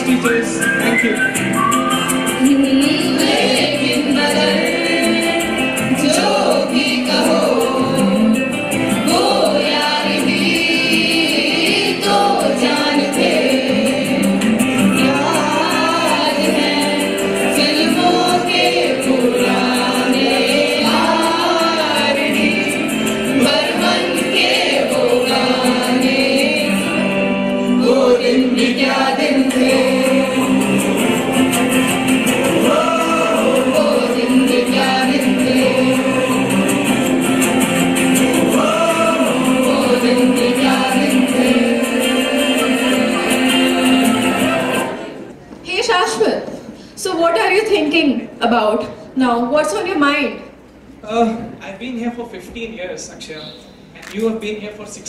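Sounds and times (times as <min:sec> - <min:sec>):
group singing in chorus: 0:01.5 - 0:45.5.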